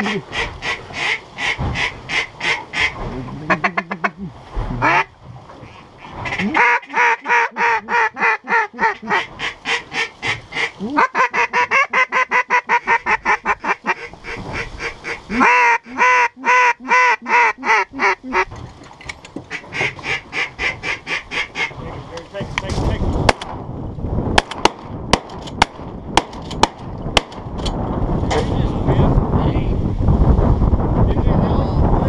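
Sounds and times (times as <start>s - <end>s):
duck call quacking: 0.0s - 4.1s, 4.8s - 18.5s, 19.5s - 21.8s.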